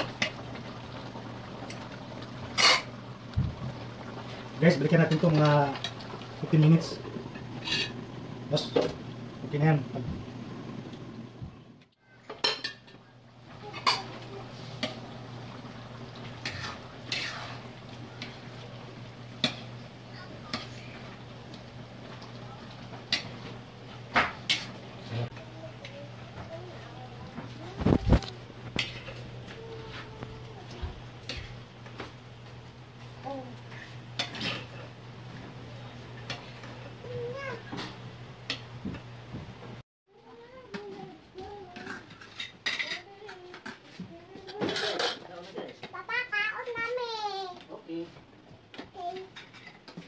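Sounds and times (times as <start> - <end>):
spatula scraping a wok: 7.6 - 8.0, 16.4 - 17.8.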